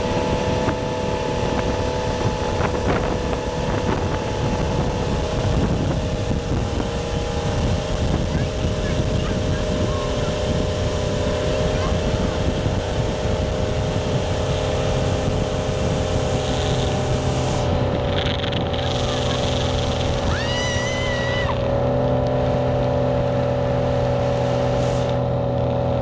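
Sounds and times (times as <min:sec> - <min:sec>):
motorboat engine running: 0:00.0 - 0:26.0
wake water noise: 0:00.0 - 0:26.0
wind: 0:00.0 - 0:26.0
high-pitched cry: 0:20.2 - 0:21.6.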